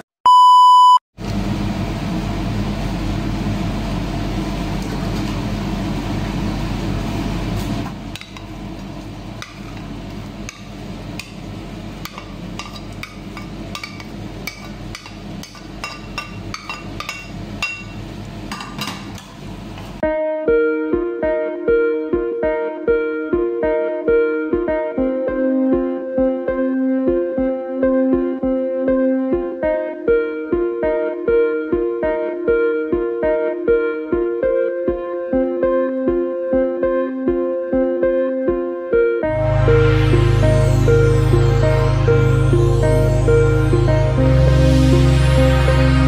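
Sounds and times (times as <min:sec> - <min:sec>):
test-tone beep: 0:00.0 - 0:01.0
guitar music: 0:20.0 - 0:46.0.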